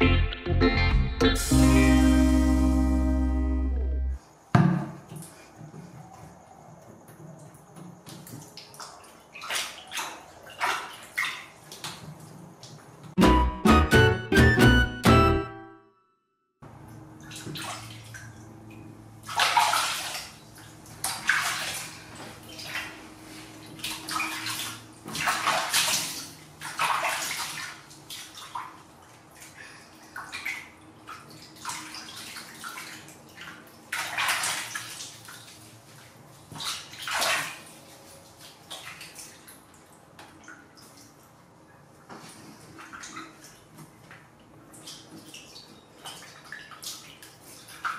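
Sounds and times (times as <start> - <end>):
water splashing in a basin: 7.4 - 13.2, 16.9 - 47.9.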